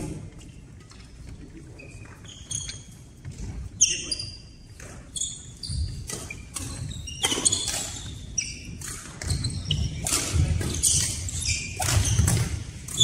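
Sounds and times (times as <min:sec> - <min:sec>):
shoes squeaking on court: 0:00.3 - 0:13.0
rackets hitting shuttlecock: 0:05.8 - 0:13.0.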